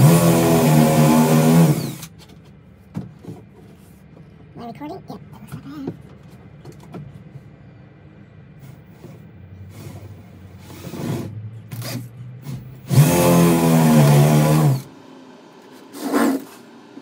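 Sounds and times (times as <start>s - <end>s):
power drill whining into wood: 0.0s - 2.1s, 8.7s - 14.9s
handling rustles and knocks: 2.1s - 4.6s.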